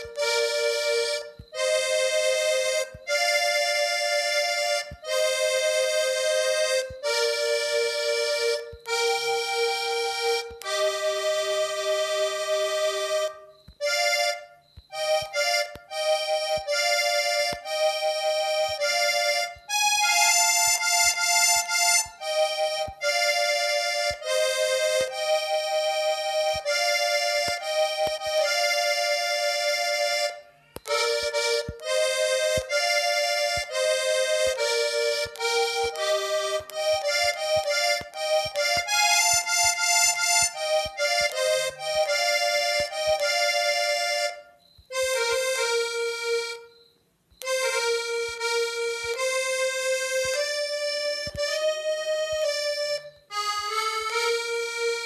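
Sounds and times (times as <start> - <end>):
accordion melody: 0.0 - 55.0.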